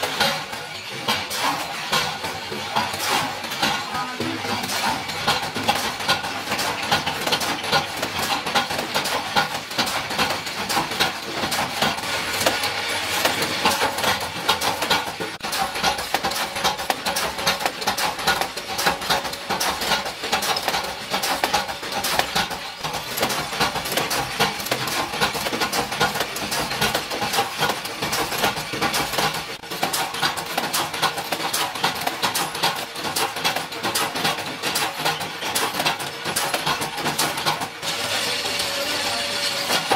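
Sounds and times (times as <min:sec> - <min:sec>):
metal parts clattering machine: 0:00.0 - 0:39.9.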